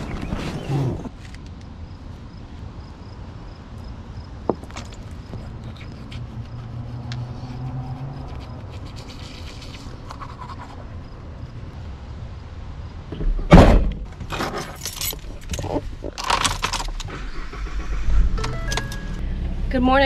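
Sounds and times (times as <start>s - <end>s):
heavy thunk: 13.2s - 14.1s
keys jangling: 14.6s - 17.0s.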